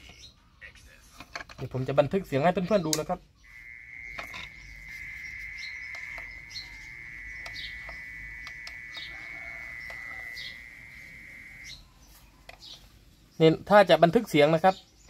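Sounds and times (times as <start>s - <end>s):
mole cricket trill: 3.4s - 11.8s.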